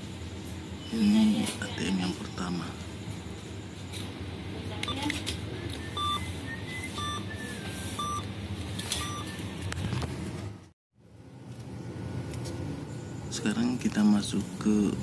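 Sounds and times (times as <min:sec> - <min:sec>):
electronic beeps: 0:05.6 - 0:09.5.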